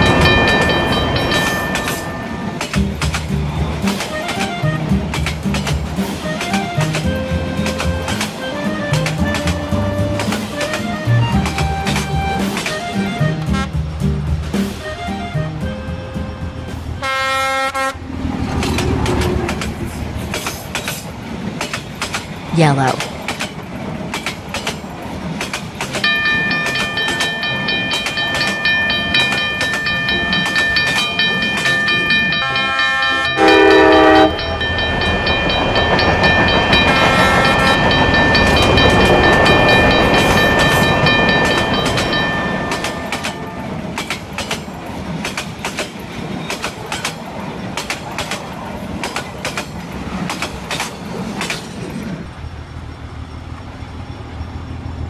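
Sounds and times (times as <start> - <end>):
crossing signal ringing: 0.0 - 2.8, 26.0 - 44.3
train wheels clattering: 0.0 - 13.5, 18.1 - 52.3
train rushing past: 0.0 - 55.0
train horn blast: 13.5 - 13.8, 17.0 - 18.1, 32.4 - 34.5, 36.8 - 38.0.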